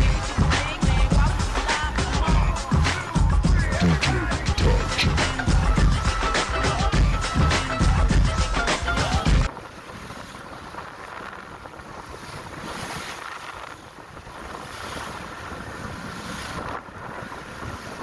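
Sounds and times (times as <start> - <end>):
choppy sea water rushing: 0.0 - 18.0
wind buffeting microphone: 9.4 - 18.0.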